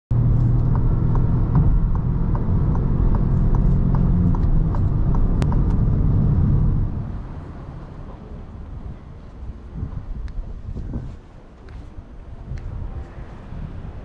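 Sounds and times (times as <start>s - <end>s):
car engine running steadily: 0.1s - 14.0s
road and wind rumble: 0.1s - 14.0s
light regular ticking: 0.2s - 6.0s.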